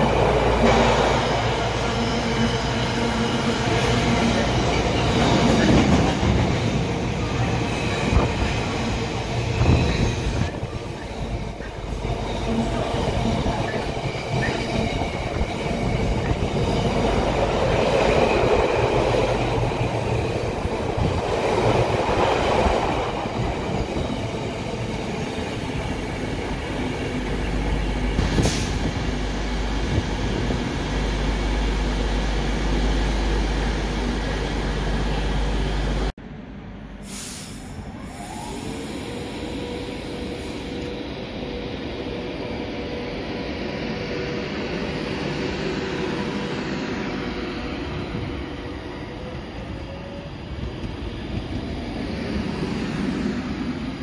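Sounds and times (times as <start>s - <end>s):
train wheels rumbling on rails: 0.0s - 36.1s, 43.9s - 54.0s.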